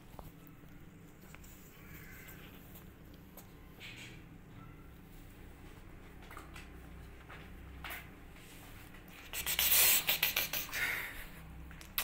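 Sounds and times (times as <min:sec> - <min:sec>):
kittens scratching on cardboard: 0:08.4 - 0:10.8.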